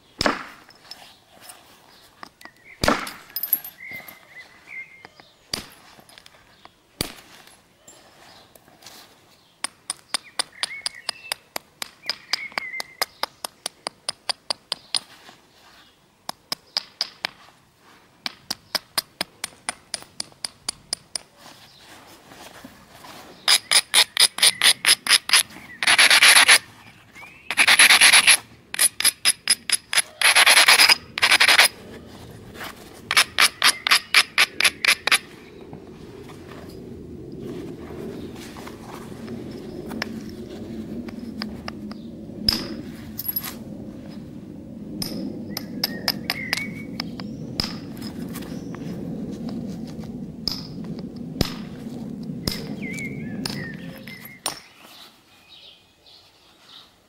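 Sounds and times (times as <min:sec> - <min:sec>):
stone scraping on flint: 0:23.4 - 0:26.7, 0:27.5 - 0:35.3.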